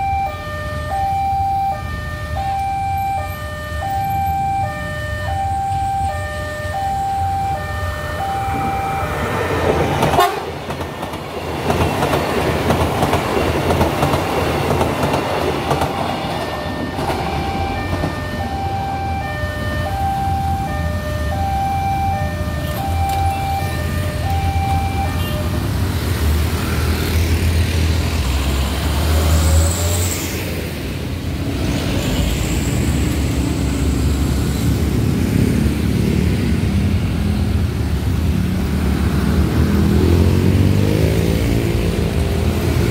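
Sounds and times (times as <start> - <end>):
bus engine: 0.0 - 42.9
motorcycle engines: 0.0 - 42.9
train rumbling on rails: 7.1 - 42.9
train horn: 8.0 - 10.6.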